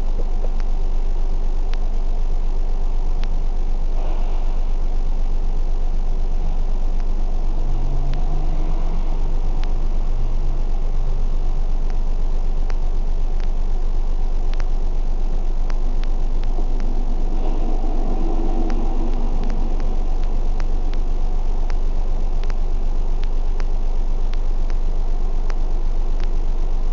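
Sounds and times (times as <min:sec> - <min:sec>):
vehicle engine idling: 0:00.0 - 0:26.9
faint irregular clicks: 0:03.0 - 0:04.0, 0:05.8 - 0:08.3, 0:09.3 - 0:26.9.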